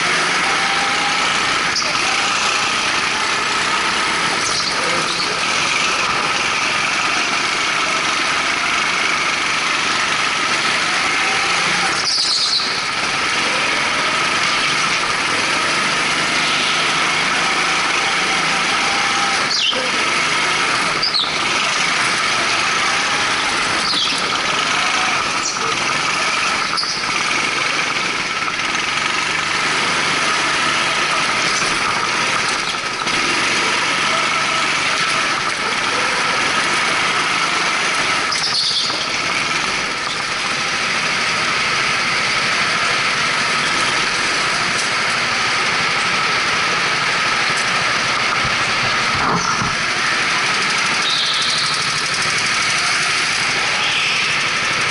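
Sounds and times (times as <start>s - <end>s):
go-kart engine drone: 0.0s - 54.9s
tyre squeals: 10.7s - 13.0s, 14.8s - 25.8s, 26.6s - 27.2s, 38.1s - 40.4s, 50.9s - 52.0s.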